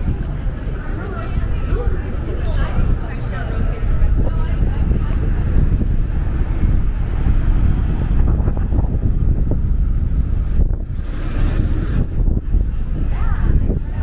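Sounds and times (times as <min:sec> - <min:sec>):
city street traffic: 0:00.0 - 0:14.0
wind buffeting microphone: 0:00.0 - 0:14.0.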